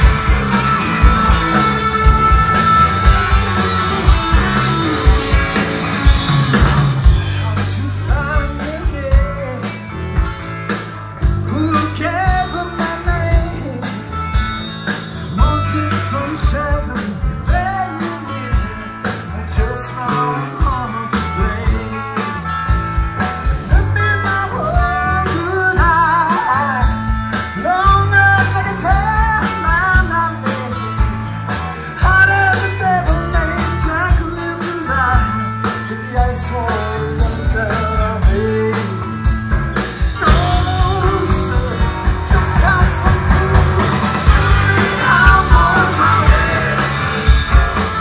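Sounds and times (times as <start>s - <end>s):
drums with steady beat: 0.0s - 48.0s
electric bass: 0.0s - 48.0s
electric guitars: 0.0s - 48.0s
man singing: 7.1s - 10.1s, 11.2s - 14.3s, 15.2s - 22.5s, 23.2s - 48.0s.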